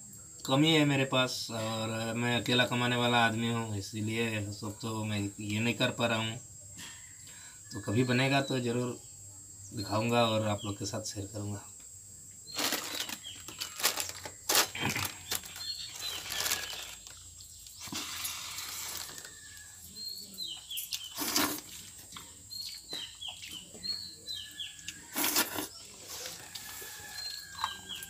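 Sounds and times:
birds chirping: 0:07.0 - 0:28.0.

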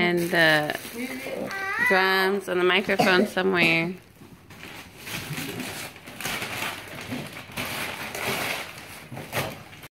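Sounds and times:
wrapping paper tearing and rustling: 0:00.0 - 0:02.1, 0:04.4 - 0:09.9.

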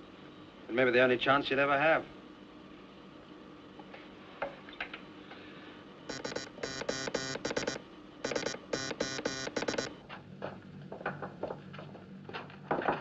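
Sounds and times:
buzzy morse code tone: 0:06.1 - 0:10.0.

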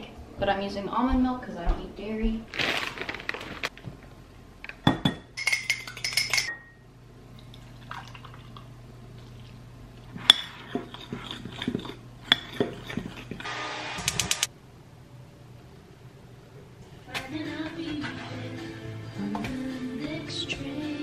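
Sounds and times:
spoon clinking glass bowl: 0:04.8 - 0:06.8
metal cup scraping glass bowl: 0:10.2 - 0:13.5.

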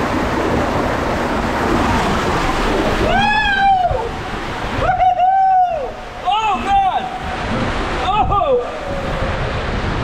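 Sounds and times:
water rushing down slide tube: 0:00.0 - 0:10.0
person yelling: 0:03.0 - 0:04.1, 0:04.8 - 0:07.2, 0:08.0 - 0:08.8.

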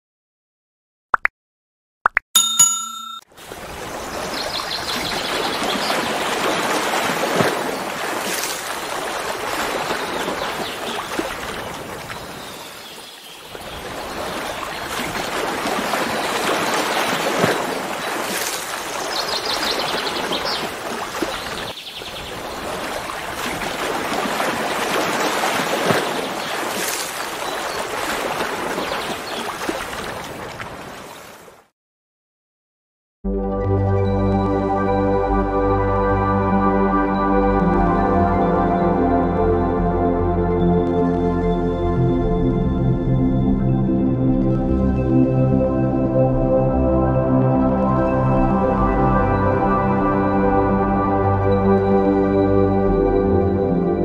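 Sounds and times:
rushing water: 0:03.4 - 0:31.7.

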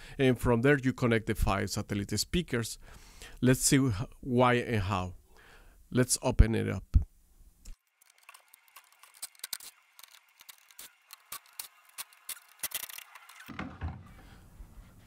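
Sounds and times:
plastic cabinet clicks and rattles: 0:13.5 - 0:14.1.

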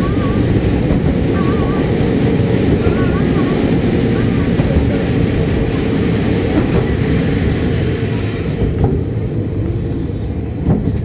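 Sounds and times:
railcar diesel engine rumble: 0:00.0 - 0:11.0
faint rail clacks: 0:10.2 - 0:11.0.

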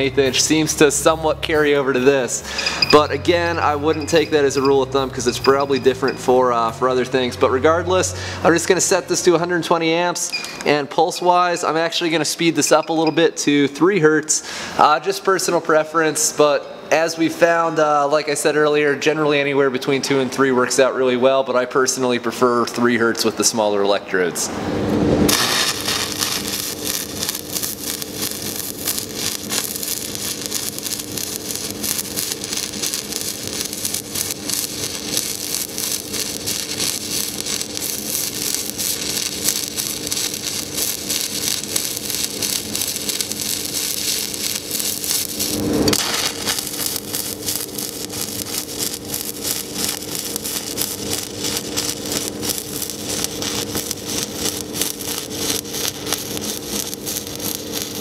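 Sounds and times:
pulsed welding arc crackling: 0:00.0 - 0:13.4, 0:25.3 - 0:58.0
steady hum: 0:00.0 - 0:58.0.

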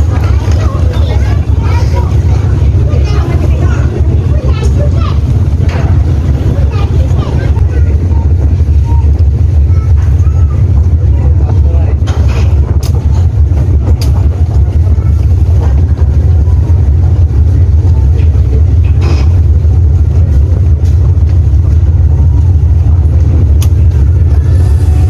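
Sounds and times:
ferry engines rumbling: 0:00.0 - 0:25.0
knocks and clanks: 0:05.5 - 0:07.1, 0:11.9 - 0:14.6, 0:18.1 - 0:19.6.

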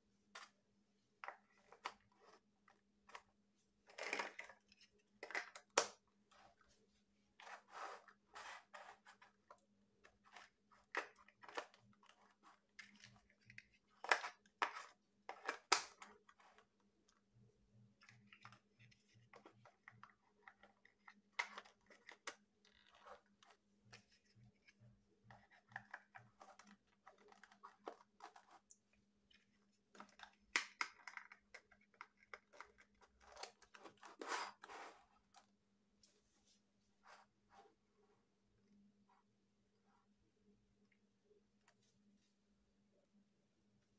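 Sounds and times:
plastic rubbing and scraping: 0:06.3 - 0:15.6, 0:31.0 - 0:35.4
plastic building blocks clicking: 0:29.9 - 0:33.9.

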